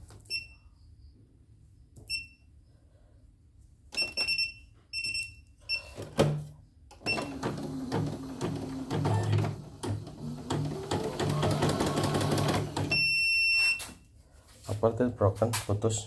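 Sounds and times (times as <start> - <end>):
machine key beeps: 3.9 - 5.9, 7.0 - 7.5.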